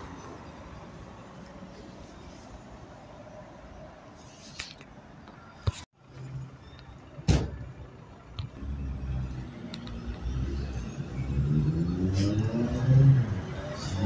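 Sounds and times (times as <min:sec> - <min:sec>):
vehicle engines passing: 0:06.0 - 0:14.0
engine accelerating: 0:08.6 - 0:14.0.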